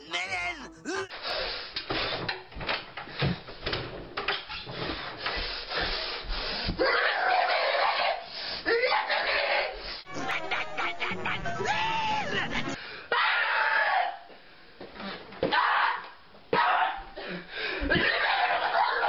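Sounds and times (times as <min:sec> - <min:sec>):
harsh drawn-out noise: 0:10.1 - 0:12.8
rising cry: 0:10.1 - 0:14.2.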